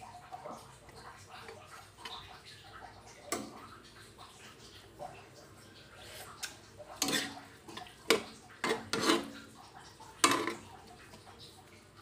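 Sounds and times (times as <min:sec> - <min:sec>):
spatula scraping metal wok: 0:07.0 - 0:07.5, 0:08.6 - 0:09.5.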